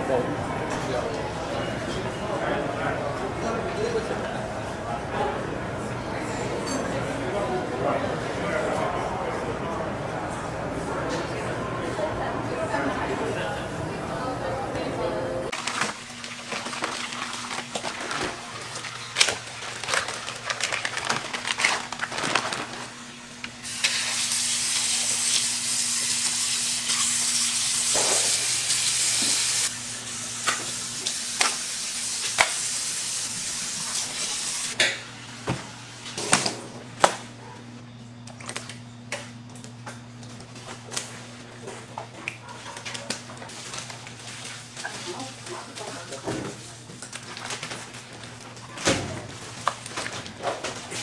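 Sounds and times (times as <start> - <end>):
plastic wrap crinkling: 15.5 - 23.6, 42.9 - 51.0.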